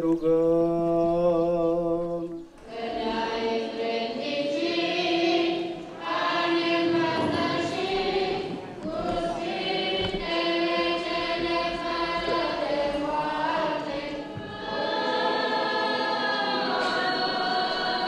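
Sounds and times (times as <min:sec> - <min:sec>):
choir chanting: 0:00.0 - 0:18.0.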